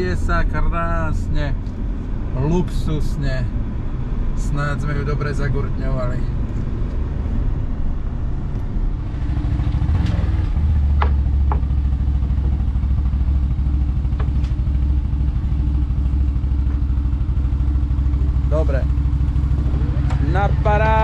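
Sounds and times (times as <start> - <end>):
road noise inside moving car: 0.0 - 21.0
quad engine idling: 10.6 - 21.0.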